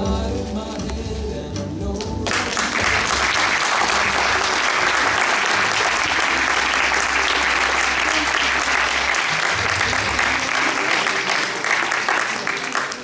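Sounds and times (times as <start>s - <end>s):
background music: 0.0s - 13.0s
audience applauding: 2.2s - 13.0s.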